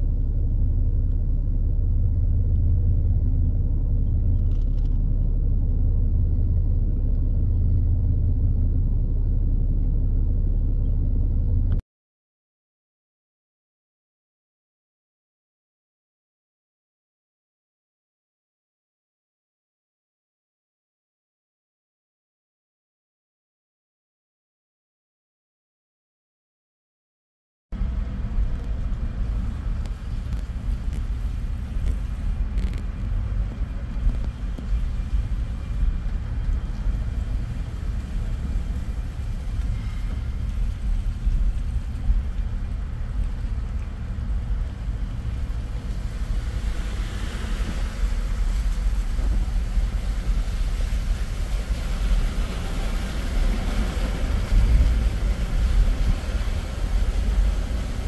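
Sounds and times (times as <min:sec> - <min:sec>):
car engine and road rumble: 0:00.0 - 0:11.8, 0:27.8 - 0:58.0
water spray hissing from tyres: 0:27.8 - 0:58.0.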